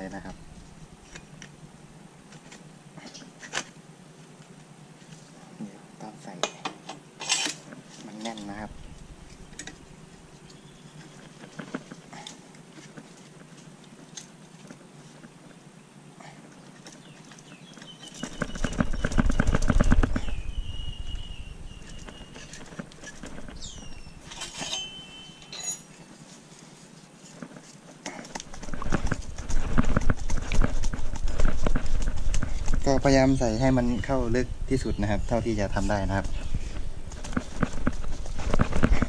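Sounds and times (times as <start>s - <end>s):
metal muffler rattling scrape: 24.2s - 25.8s.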